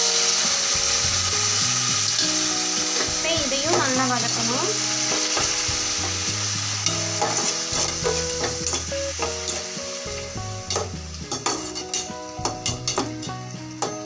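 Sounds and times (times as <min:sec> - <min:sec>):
food sizzling in oil: 0:00.0 - 0:14.0
spatula scraping a pan: 0:01.0 - 0:09.8, 0:10.6 - 0:13.2.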